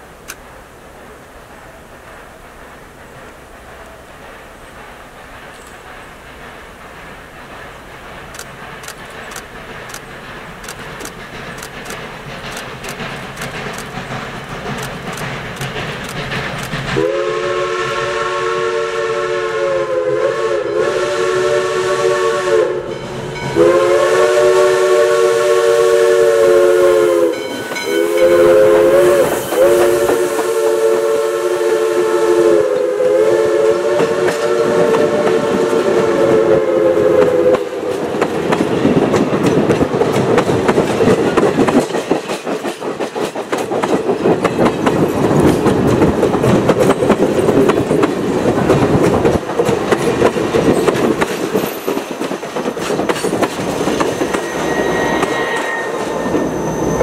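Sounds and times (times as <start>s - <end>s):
train wheels clacking over rail joints: 0.0s - 19.4s, 22.1s - 56.9s
three-chime steam whistle: 17.0s - 37.9s, 54.0s - 57.0s.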